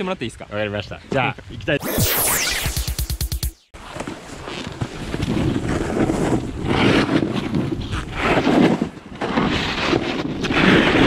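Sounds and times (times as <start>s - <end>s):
snowboards scraping over snow: 4.8s - 11.0s.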